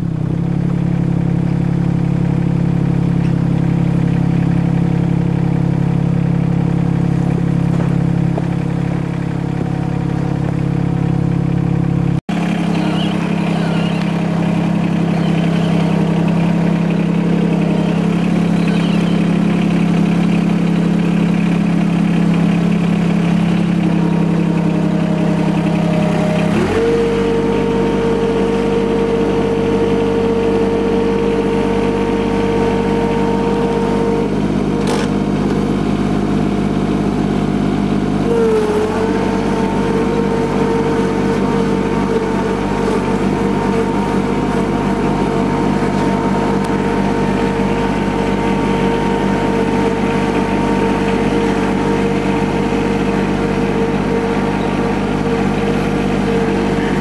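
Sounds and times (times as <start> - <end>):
high whine: 0.0 - 35.6
tractor diesel engine running: 0.0 - 57.0.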